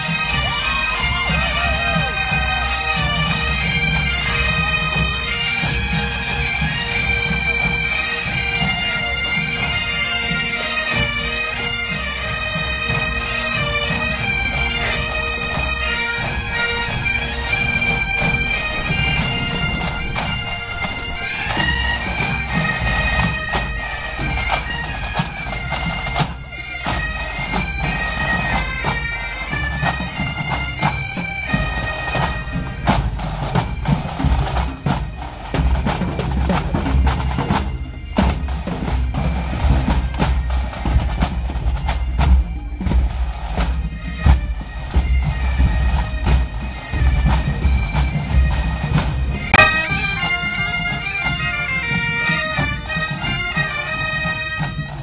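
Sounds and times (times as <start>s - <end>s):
bagpipes playing over drone: 0.0s - 55.0s
snare drum strokes: 32.1s - 55.0s.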